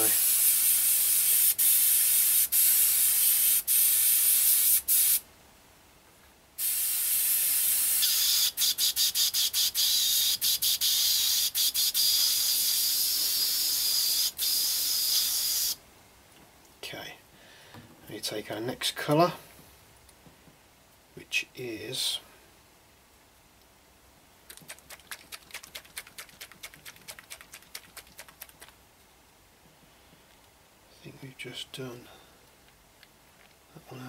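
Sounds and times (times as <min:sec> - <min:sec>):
airbrush hissing: 0:00.0 - 0:05.2, 0:06.6 - 0:15.8.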